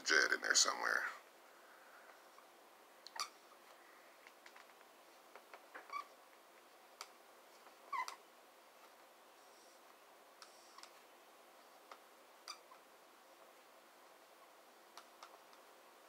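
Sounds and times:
marker squeaking on whiteboard: 3.1s - 3.6s, 5.6s - 6.2s, 7.8s - 8.3s, 10.4s - 11.0s, 12.4s - 12.8s.

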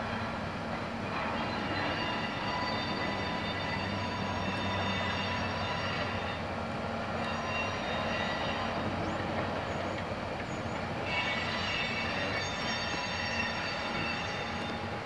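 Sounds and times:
locomotive engine drone: 0.0s - 15.0s
train rolling rumble: 0.0s - 15.0s
wheels squealing: 7.2s - 14.8s.

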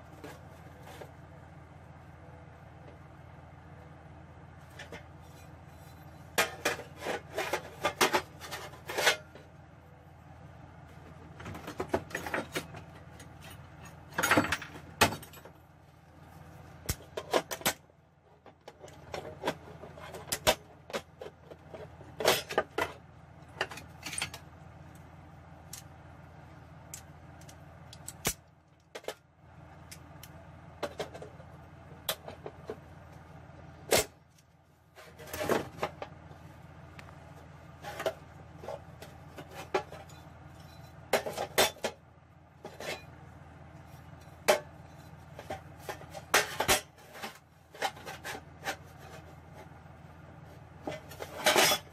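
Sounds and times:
low steady hum: 0.0s - 51.9s
metal scraping: 50.4s - 51.9s.

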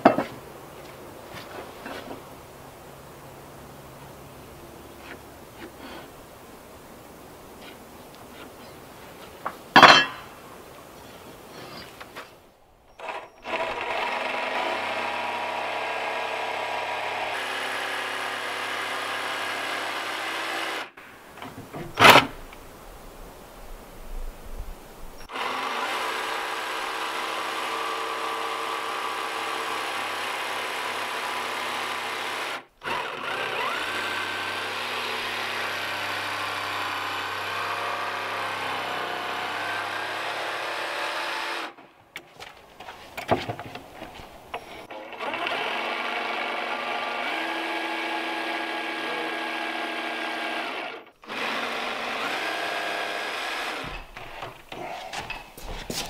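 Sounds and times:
jigsaw cutting plywood: 13.0s - 20.9s, 25.3s - 41.8s, 44.9s - 55.0s.

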